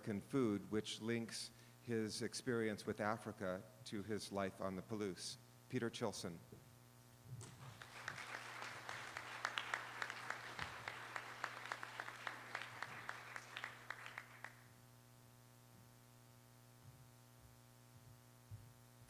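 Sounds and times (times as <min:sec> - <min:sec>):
steady electrical hum: 0:00.0 - 0:19.0
audience applauding: 0:07.4 - 0:14.7.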